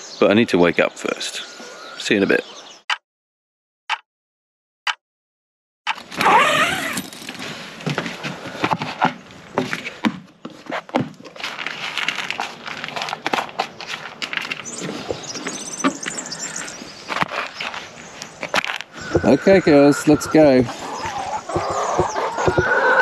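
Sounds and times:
metal spoon scraping plastic tub: 0:06.6 - 0:07.6
hens calling: 0:19.0 - 0:23.0.

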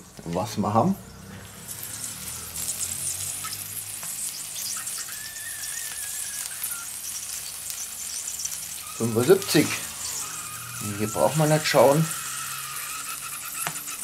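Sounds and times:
fat sizzling over charcoal: 0:00.0 - 0:14.0
faint wavering whistle: 0:04.7 - 0:07.0, 0:08.8 - 0:13.9.

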